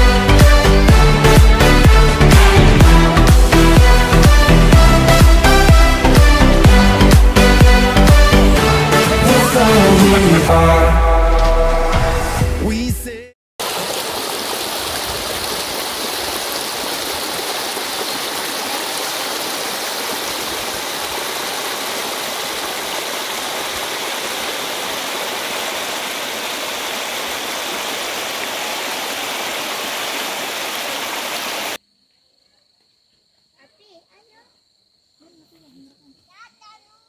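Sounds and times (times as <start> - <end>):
river water rushing: 13.6 - 31.8.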